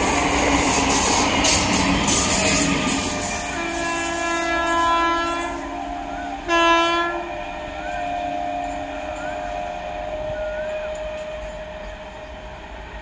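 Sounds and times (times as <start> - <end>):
electric train running: 0.0 - 13.0
electric train horn blasts: 2.5 - 12.4.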